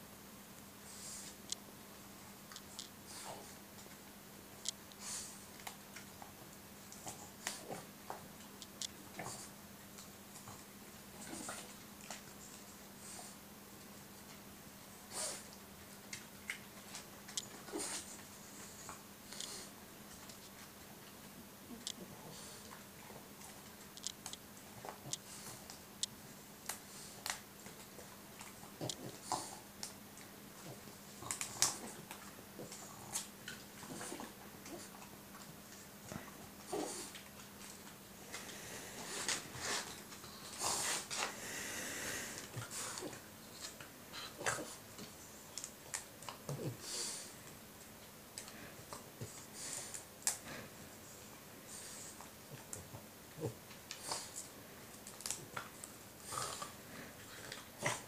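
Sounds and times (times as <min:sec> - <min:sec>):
dog chewing with wet crunching: 0:01.0 - 0:58.0
dog sniffing: 0:36.6 - 0:44.8.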